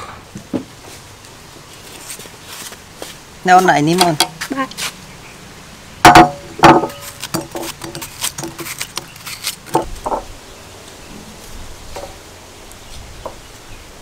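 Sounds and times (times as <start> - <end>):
knife cutting watermelon: 6.1 - 10.0.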